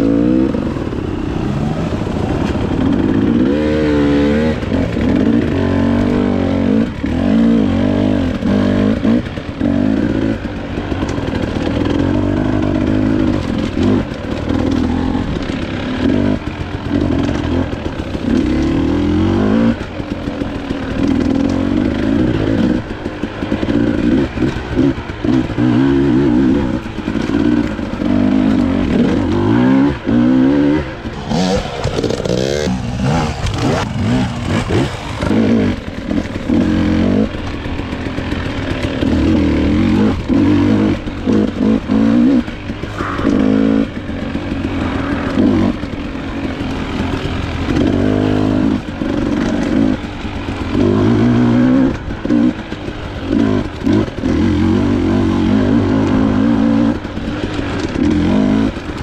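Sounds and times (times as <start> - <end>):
dirt bike engine revving: 0.0 - 59.0
bike clattering over rough ground: 26.6 - 43.2.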